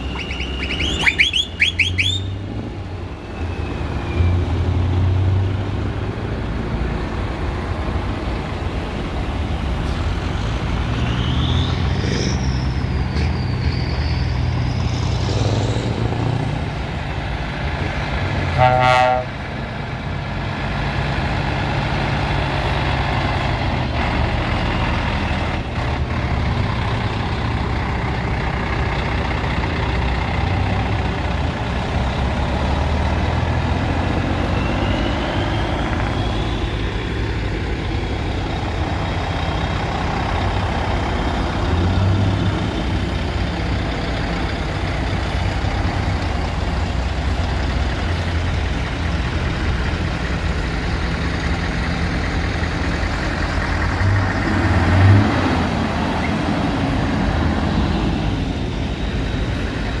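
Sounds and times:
high whistle: 0:00.0 - 0:02.4, 0:10.9 - 0:15.2, 0:34.4 - 0:36.9
diesel lorry engines: 0:00.0 - 1:00.0.

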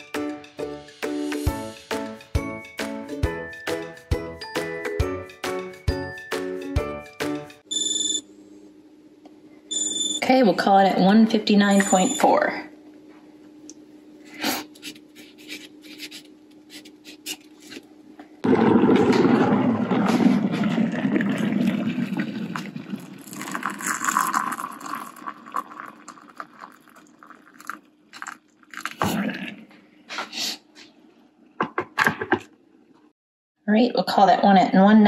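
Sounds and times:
water poured into a mug: 0:18.4 - 0:29.0.

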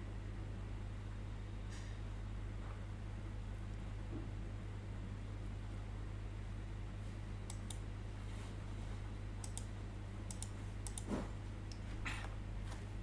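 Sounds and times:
low electrical hum: 0:00.0 - 0:13.0
computer input clicks: 0:07.5 - 0:07.8, 0:09.4 - 0:09.7, 0:10.3 - 0:11.1.

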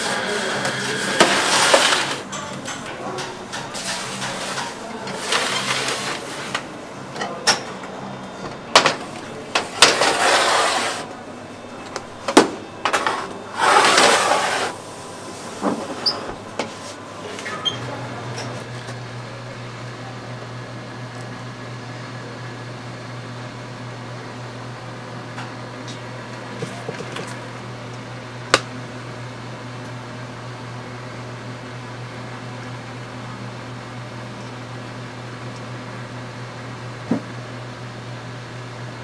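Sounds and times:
metal baking trays scraping: 0:00.0 - 0:02.4, 0:03.0 - 0:06.6, 0:09.6 - 0:11.1, 0:12.9 - 0:14.8.

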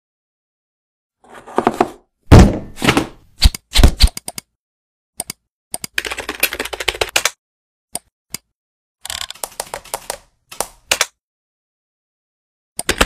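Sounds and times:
computer keyboard typing: 0:05.2 - 0:07.4, 0:09.1 - 0:11.1, 0:12.8 - 0:13.0.

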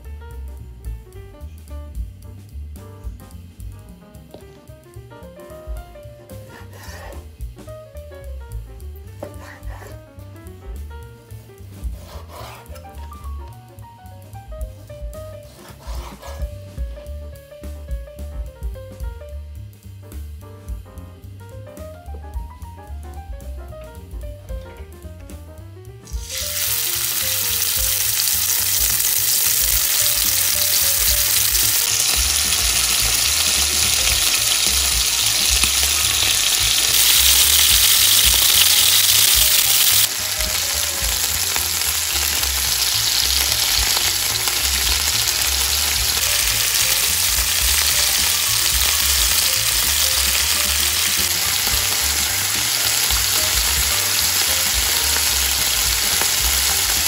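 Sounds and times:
meat sizzling in a frying pan: 0:26.1 - 0:57.0.

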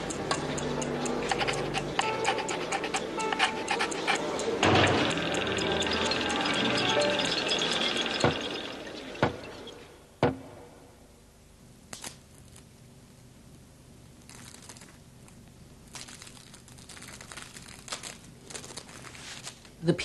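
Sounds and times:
sharp knocks: 0:04.6 - 0:06.1, 0:08.1 - 0:09.5, 0:10.2 - 0:10.6.

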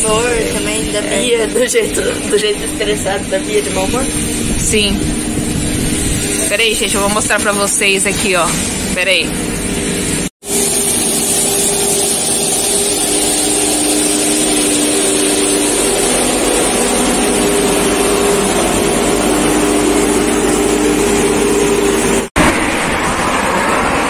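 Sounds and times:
street sweeper engine and brushes: 0:00.0 - 0:24.0.

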